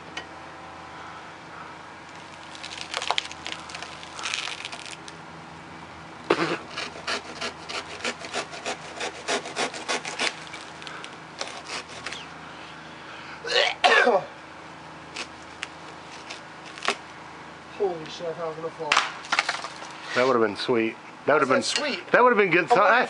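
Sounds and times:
hand saw cutting wood: 6.3s - 10.6s, 11.4s - 12.3s.

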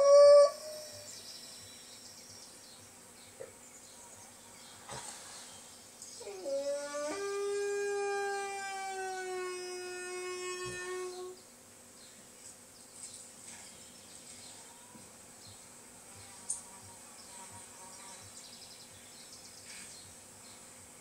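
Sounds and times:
wolf howling on television: 6.2s - 11.3s.

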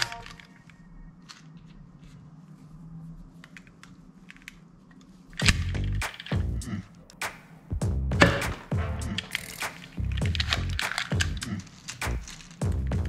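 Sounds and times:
plastic toy gun clicks and rattles: 0.0s - 1.8s, 4.3s - 6.5s, 9.2s - 12.6s
loud music: 7.8s - 11.4s.

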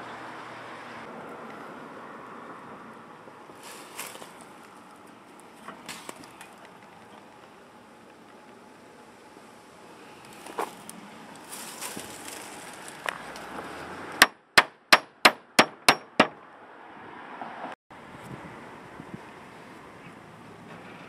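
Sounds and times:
hammer hitting nail into wood: 14.2s - 16.4s.

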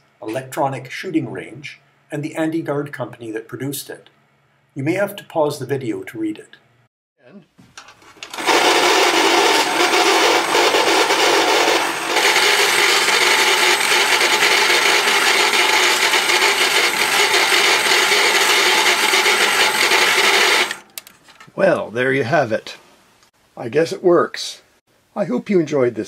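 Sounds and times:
toy mechanical noise: 8.2s - 21.0s.

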